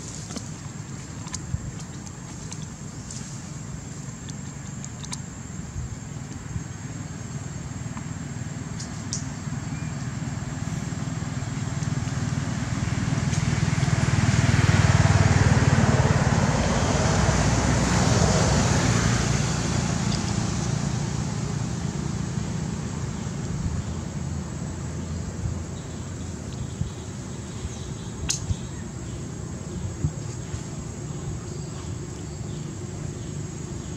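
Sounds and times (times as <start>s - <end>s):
vehicle passing by: 9.5s - 26.4s.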